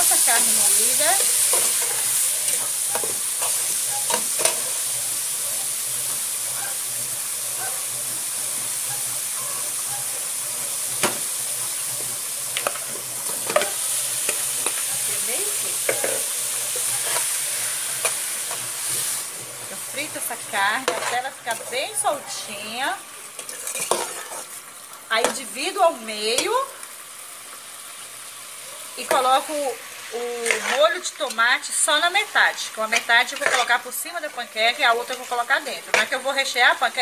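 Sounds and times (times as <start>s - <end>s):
vegetables sizzling in oil: 0.0s - 37.0s
metal spoon scraping pot: 23.4s - 24.6s, 30.4s - 31.4s.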